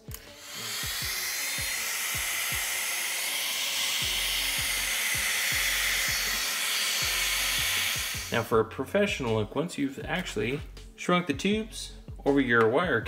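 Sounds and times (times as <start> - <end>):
heat gun blowing: 0.0 - 8.4
music with thumping bass beat: 7.0 - 13.0.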